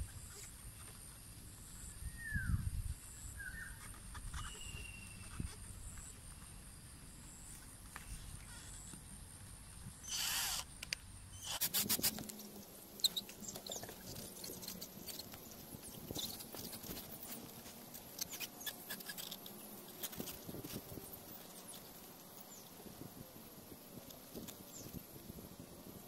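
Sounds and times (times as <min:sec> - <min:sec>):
cordless drill running: 0:10.1 - 0:10.6.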